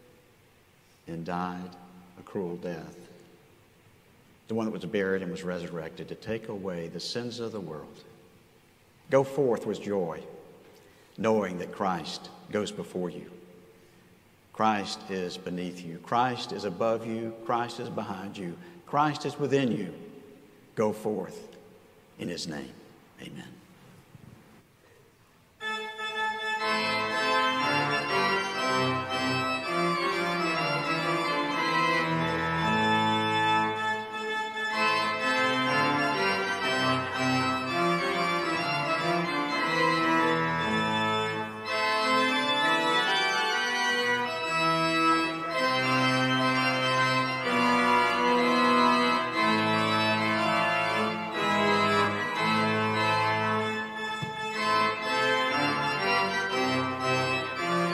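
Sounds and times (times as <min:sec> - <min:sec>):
organ playing sustained chords: 0:14.5 - 0:21.5, 0:25.6 - 0:57.9.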